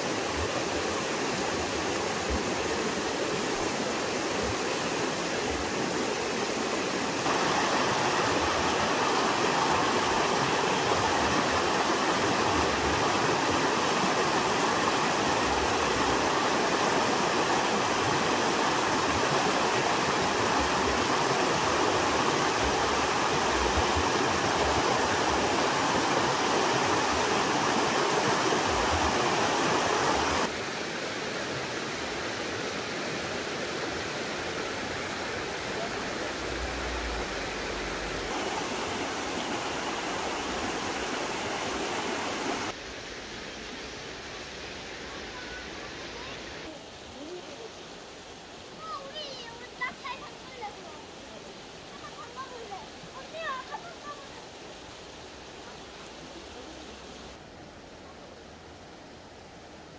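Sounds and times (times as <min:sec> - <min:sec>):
stream rushing over stones: 0:00.0 - 0:59.9.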